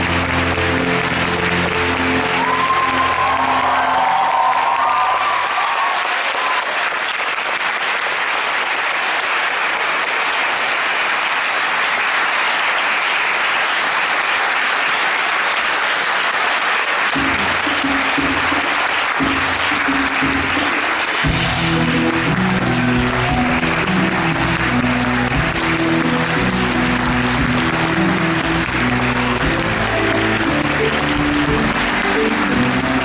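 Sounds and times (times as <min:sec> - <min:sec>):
theatre music with low bass: 0:00.0 - 0:04.6, 0:17.1 - 0:33.0
audience applauding: 0:00.0 - 0:33.0.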